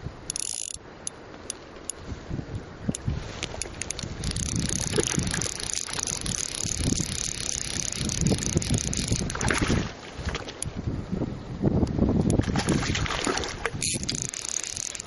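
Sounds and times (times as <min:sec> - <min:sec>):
wind on microphone: 0:00.0 - 0:00.6, 0:01.8 - 0:15.0
fishing reel drag buzzing: 0:00.3 - 0:01.2, 0:03.4 - 0:09.4, 0:13.8 - 0:15.0
fish splashing: 0:03.4 - 0:10.6, 0:12.4 - 0:15.0.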